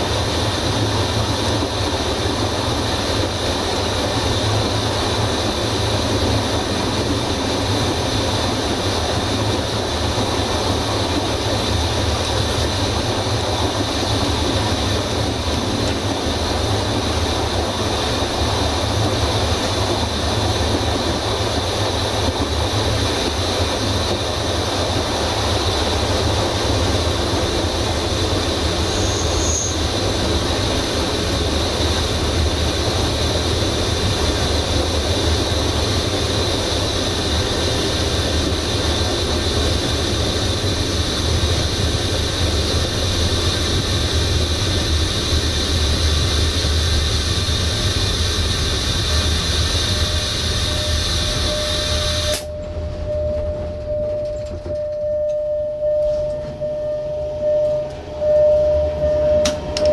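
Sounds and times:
train wheels rumbling on rails: 0.0s - 59.9s
brief high squeal: 28.8s - 29.8s, 49.9s - 59.9s.

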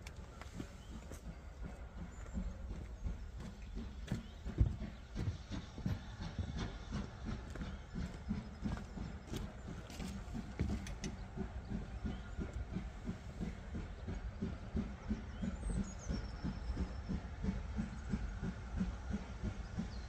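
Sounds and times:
steam locomotive chuffing: 0.0s - 20.0s.

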